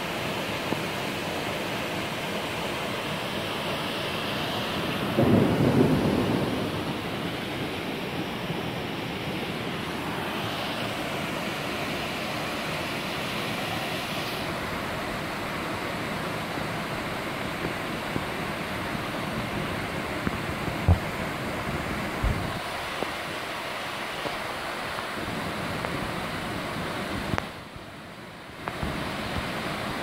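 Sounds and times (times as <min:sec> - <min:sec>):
waterfall rushing: 0:00.0 - 0:30.0
wind rumble on microphone: 0:19.3 - 0:23.2.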